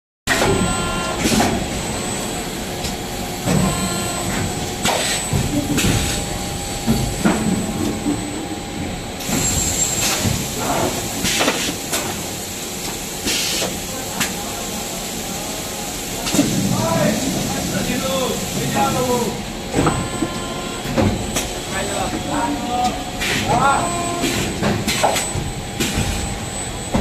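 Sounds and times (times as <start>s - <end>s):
machine mechanical hum: 0.3s - 27.0s
pneumatic air hisses: 13.2s - 13.8s.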